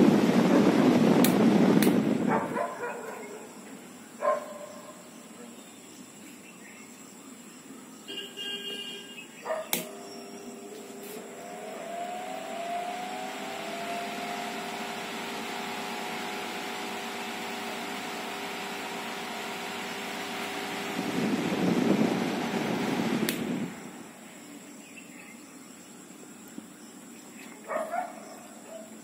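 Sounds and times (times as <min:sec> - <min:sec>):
fan motor humming: 0:00.0 - 0:04.0, 0:09.3 - 0:24.8
fan knob click: 0:01.2 - 0:02.0, 0:09.7 - 0:10.0, 0:23.2 - 0:23.6
loud rough noise: 0:10.5 - 0:23.9.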